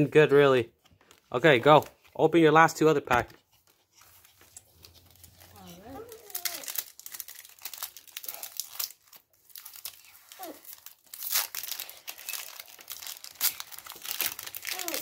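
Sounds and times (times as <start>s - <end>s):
foil wrapper crinkling and tearing: 4.2s - 15.0s.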